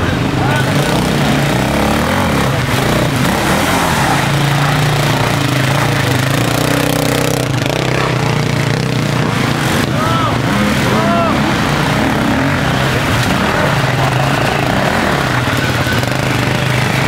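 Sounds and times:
motorcycle engine revving hard: 0.0 - 17.0.

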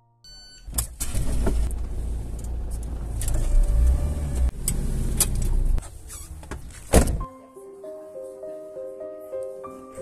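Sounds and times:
car engine and road noise: 0.3 - 7.3.

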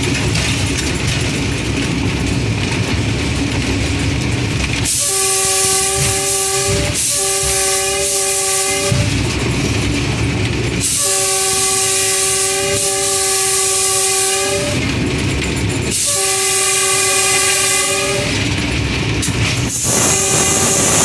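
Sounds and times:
locomotive running noise: 0.0 - 21.0
locomotive air horn blasts: 4.9 - 9.2, 10.8 - 14.9, 16.0 - 18.5, 19.8 - 21.0.

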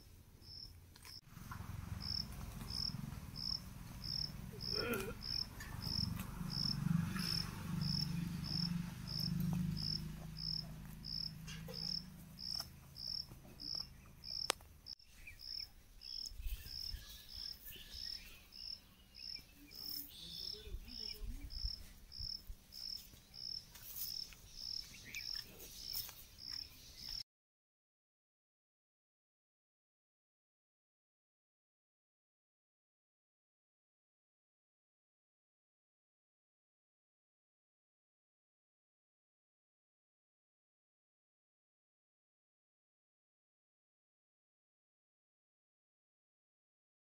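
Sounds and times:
insect chirping: 0.4 - 1.2, 2.0 - 14.5.

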